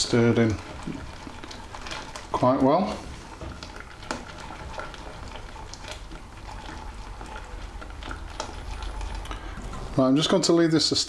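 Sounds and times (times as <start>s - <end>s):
whisk swishing liquid in saucepan: 0.0s - 11.0s.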